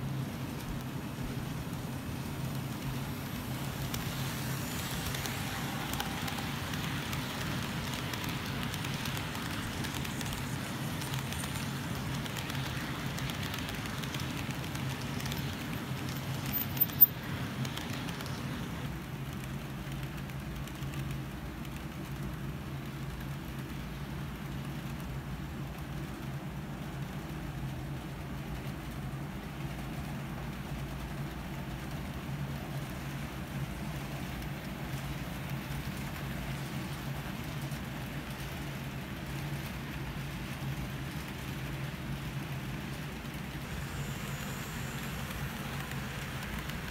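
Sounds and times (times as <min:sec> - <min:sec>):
model train wheels rumbling on rail: 0:00.0 - 0:46.9
high hiss: 0:01.3 - 0:17.1, 0:43.4 - 0:46.9
model train motor hum: 0:03.6 - 0:15.4, 0:43.7 - 0:46.9.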